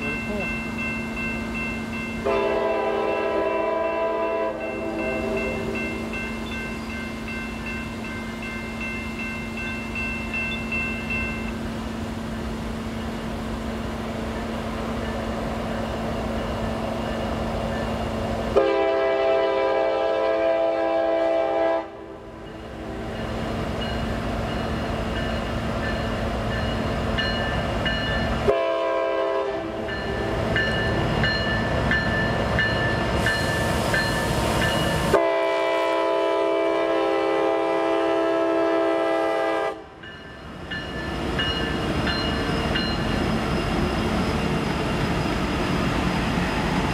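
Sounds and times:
diesel locomotive engines rumbling: 0.0s - 46.9s
train air horn blasts: 2.2s - 6.0s, 18.5s - 23.3s, 28.4s - 29.9s, 35.1s - 40.0s.

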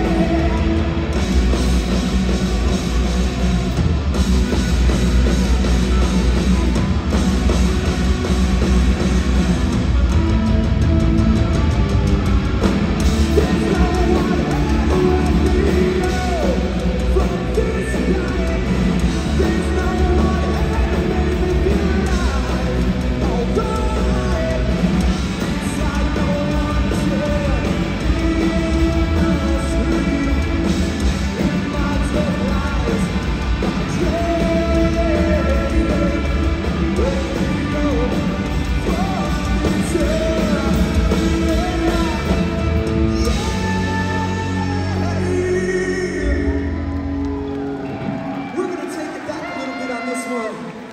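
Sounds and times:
punk rock band playing live: 0.0s - 48.6s
person singing: 13.0s - 46.8s.

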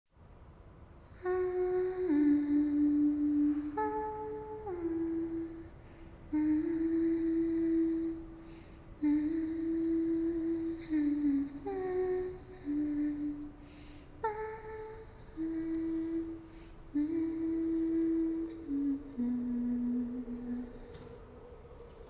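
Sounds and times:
woman humming: 1.1s - 22.0s
breaths: 5.3s - 6.3s, 8.2s - 9.0s, 13.4s - 14.2s, 16.0s - 17.0s, 20.3s - 22.0s.

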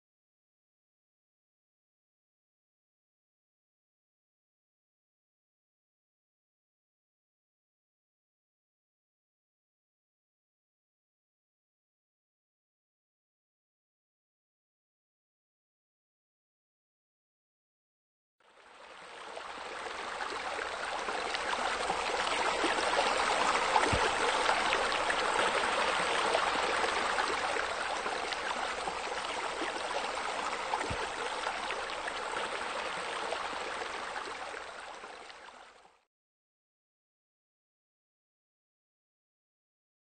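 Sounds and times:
water splashing from waterfall: 19.9s - 35.4s.

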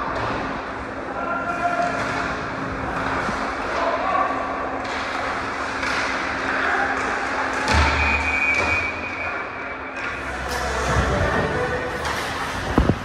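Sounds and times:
crowd voices in a hall: 0.0s - 13.0s.

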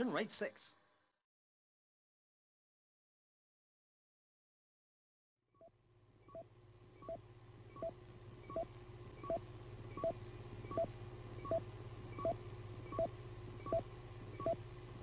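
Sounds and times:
low electrical hum: 5.6s - 15.0s
high electronic bleeps: 7.0s - 14.6s.

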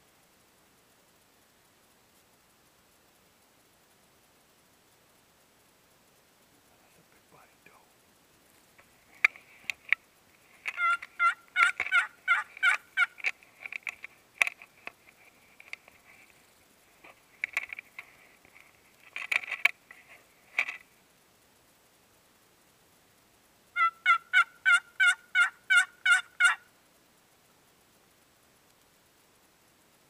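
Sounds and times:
friction turkey call: 10.6s - 14.0s, 23.8s - 26.7s.

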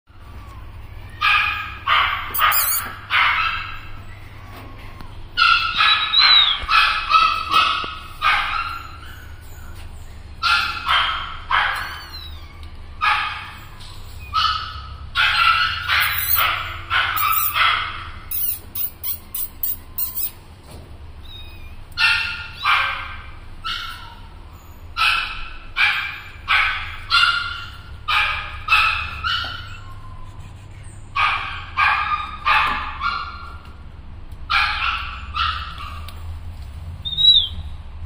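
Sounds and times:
young animals crying: 0.1s - 1.9s, 3.8s - 6.7s, 11.7s - 13.0s.

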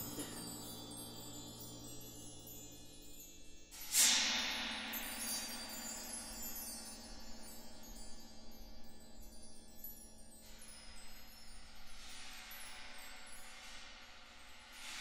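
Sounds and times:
metal percussion ringing: 0.0s - 11.2s
faint high tinkling: 0.0s - 15.0s.

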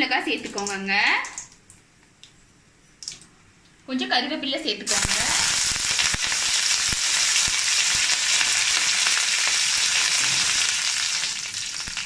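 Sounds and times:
leaves sizzling in hot oil: 4.9s - 12.0s.

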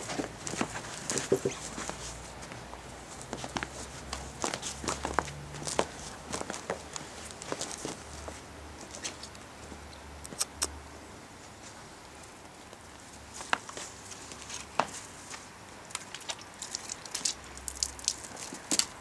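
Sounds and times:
footsteps crunching on snow: 0.0s - 9.2s.

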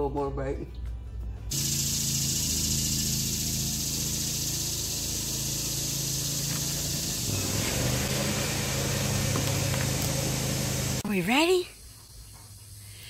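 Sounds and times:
steady machine drone with hiss: 1.5s - 11.4s.

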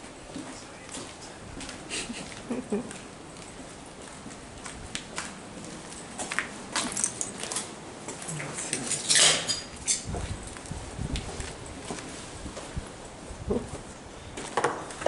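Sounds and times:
footsteps crunching on debris: 0.3s - 8.3s.

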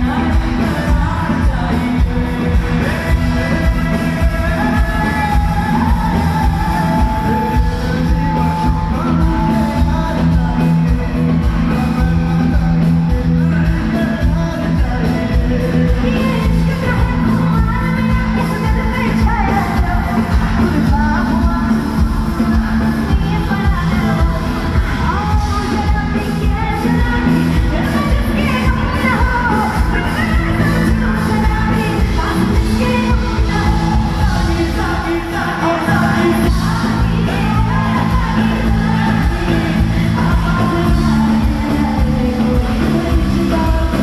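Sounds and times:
live band playing: 0.0s - 44.0s
person singing: 0.0s - 44.0s.

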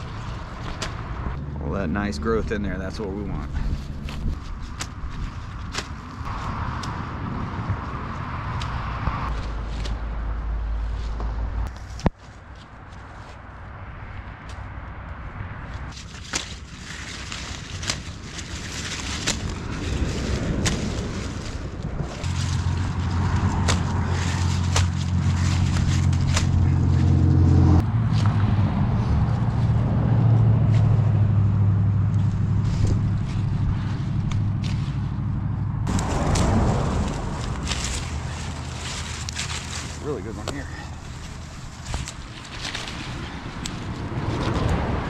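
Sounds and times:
vehicle engine droning: 0.0s - 45.0s
plant stalks snapping: 0.4s - 1.3s, 3.7s - 7.0s, 8.4s - 10.0s, 15.9s - 27.2s, 32.1s - 35.1s, 35.9s - 44.9s.

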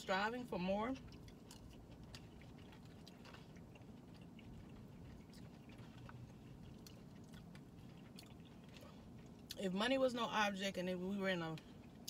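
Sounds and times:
low steady hum: 0.0s - 12.0s
quiet chewing: 0.6s - 9.6s.

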